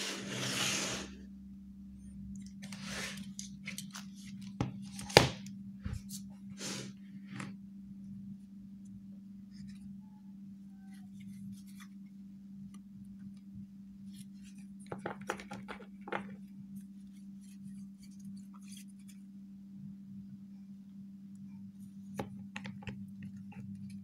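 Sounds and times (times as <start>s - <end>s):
steady low hum: 1.0s - 15.2s, 15.8s - 24.0s
cards being shuffled and sorted: 2.6s - 5.4s, 14.2s - 16.4s.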